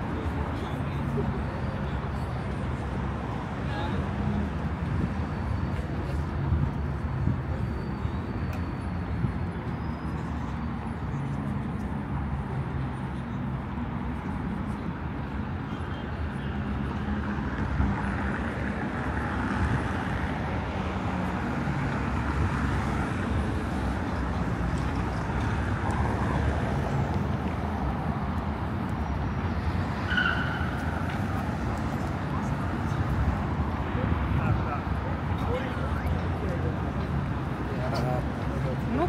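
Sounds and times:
traffic rumble: 0:00.0 - 0:39.0.

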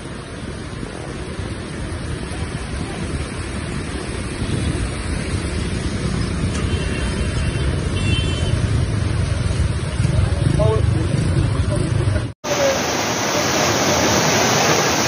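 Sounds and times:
heavy rain: 0:00.0 - 0:15.0
floodwater rushing: 0:12.4 - 0:15.0.

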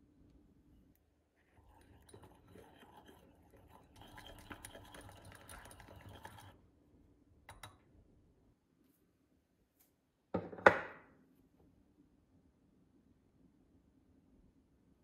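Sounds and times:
wire whisk scraping a bowl: 0:01.5 - 0:06.6.

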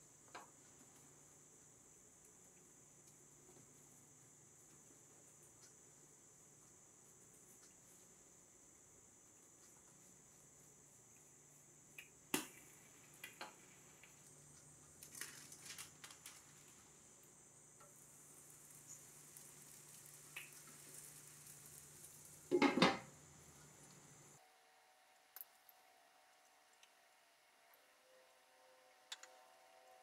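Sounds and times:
glass lid clattering onto skillet: 0:22.5 - 0:23.0.

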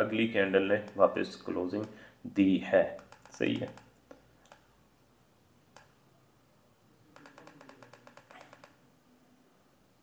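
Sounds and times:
scroll-wheel ticks: 0:00.8 - 0:02.0, 0:02.9 - 0:04.7, 0:07.2 - 0:08.8
mouse click: 0:03.0 - 0:04.7, 0:05.7 - 0:06.0.

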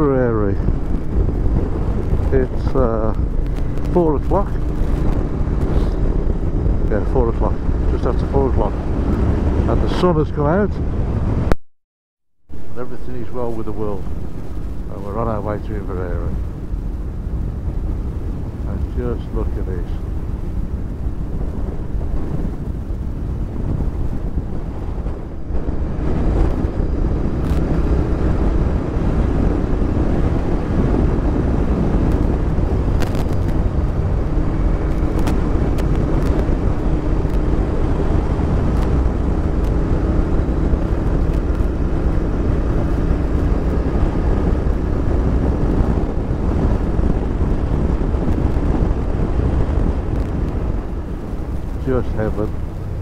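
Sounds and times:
wind rush on helmet: 0:00.0 - 0:11.6, 0:12.5 - 0:53.0
motorcycle engine running: 0:00.6 - 0:09.7, 0:20.0 - 0:53.0.

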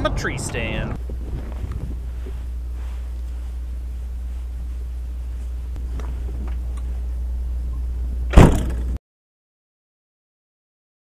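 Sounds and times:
steady low rumble: 0:00.0 - 0:09.0
faint rustling: 0:01.0 - 0:07.2.

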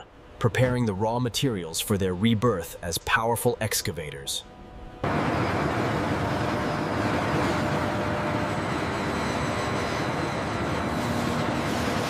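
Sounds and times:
faint hum: 0:00.0 - 0:11.9
heavy machinery rumble and hiss: 0:04.7 - 0:12.0.

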